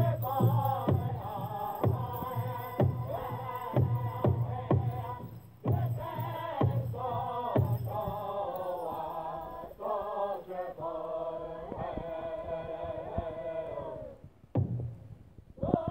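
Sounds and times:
big drum beats: 0:00.0 - 0:08.4, 0:14.5 - 0:15.3
men chanting in unison: 0:00.0 - 0:14.3, 0:15.6 - 0:15.9.

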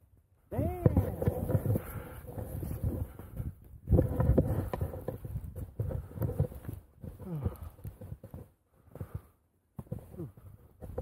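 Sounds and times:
person breathing hard: 0:01.6 - 0:03.5, 0:07.1 - 0:08.0.

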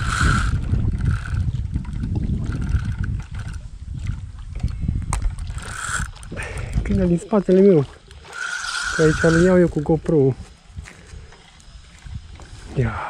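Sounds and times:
wind rumble on microphone: 0:00.0 - 0:08.1, 0:08.8 - 0:13.0
water sloshing and splashing: 0:00.6 - 0:09.1.

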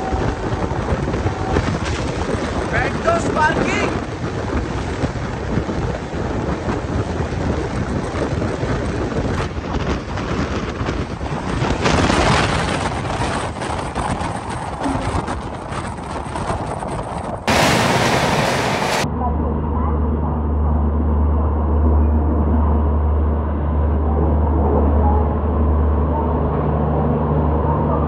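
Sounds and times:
train wheels rumbling on rails: 0:00.0 - 0:19.1
wind buffeting microphone: 0:00.0 - 0:28.0.

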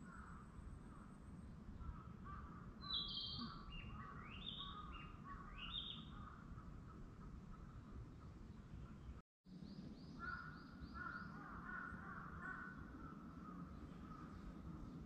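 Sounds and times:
low bird chirping: 0:00.0 - 0:15.0
rising bird calls: 0:01.8 - 0:07.9, 0:10.0 - 0:15.0.

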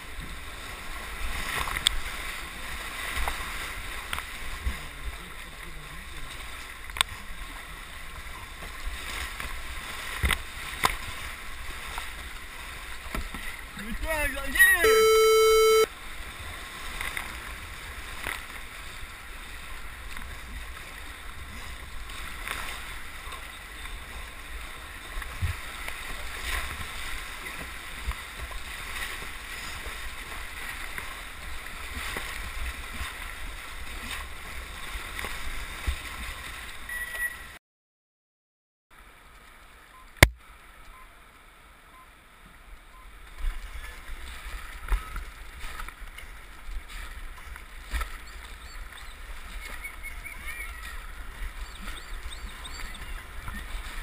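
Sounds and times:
whitewater rushing and splashing: 0:00.0 - 0:36.9.

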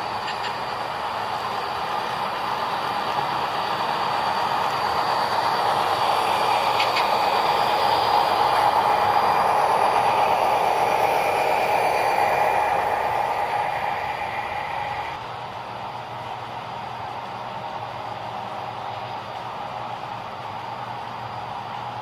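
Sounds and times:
model wheels rolling on track: 0:00.0 - 0:15.2
model diesel engine sound from speakers: 0:00.0 - 0:15.3.

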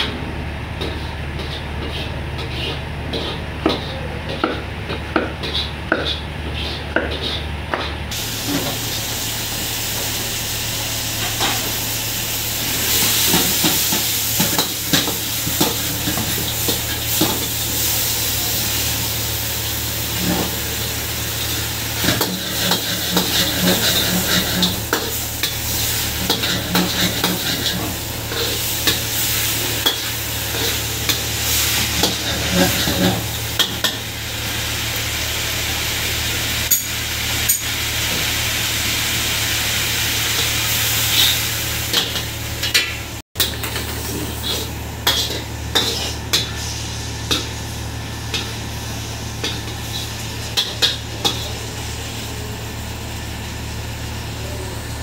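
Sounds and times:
food sizzling in a wok: 0:00.1 - 0:55.0
metal spatula scraping a pan: 0:00.8 - 0:04.5, 0:05.3 - 0:07.9, 0:22.0 - 0:34.0, 0:43.4 - 0:47.5.

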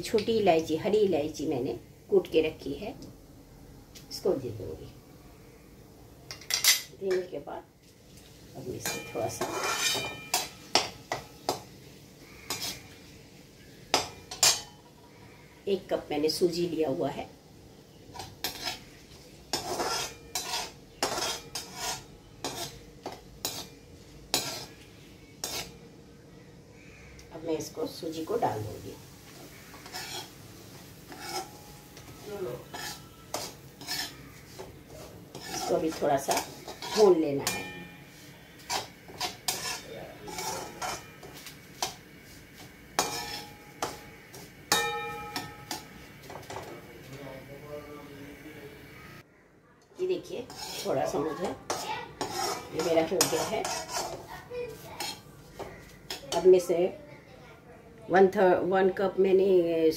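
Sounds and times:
spices frying in ghee: 0:00.0 - 0:49.2, 0:50.0 - 0:57.0
metal skimmer scraping pan: 0:08.8 - 0:10.5, 0:19.5 - 0:24.8, 0:29.5 - 0:30.4, 0:31.0 - 0:41.9, 0:42.9 - 0:45.9, 0:50.4 - 0:54.3
ringing metal clanks: 0:44.7 - 0:45.8.

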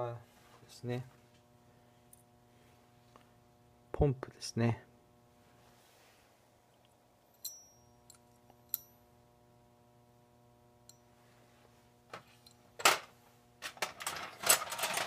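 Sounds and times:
steady low hum: 0:00.0 - 0:14.1
light metallic clinks: 0:07.3 - 0:09.1
metal parts clattering in a tray: 0:12.8 - 0:15.0.

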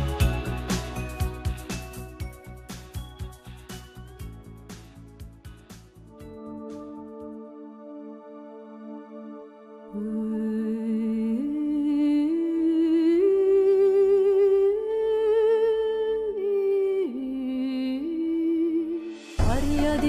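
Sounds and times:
slow melody with vibrato: 0:00.0 - 0:20.0.

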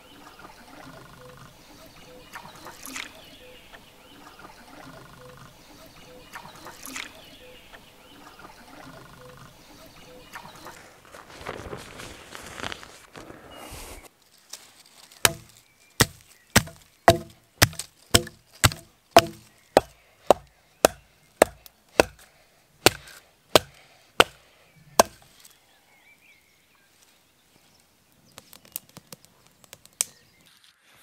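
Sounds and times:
machete knocking through wood: 0:15.2 - 0:24.4, 0:25.0 - 0:25.3.

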